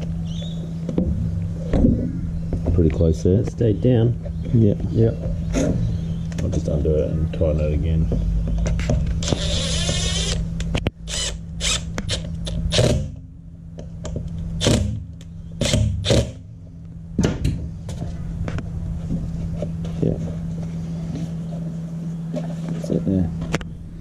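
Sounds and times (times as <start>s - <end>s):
steady low hum: 0.0s - 24.0s
cordless driver running: 9.2s - 13.0s.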